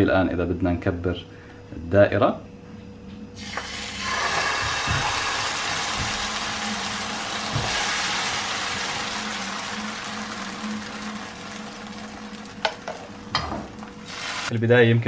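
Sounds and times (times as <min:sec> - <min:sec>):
batter sizzling in a frying pan: 0:03.4 - 0:14.6.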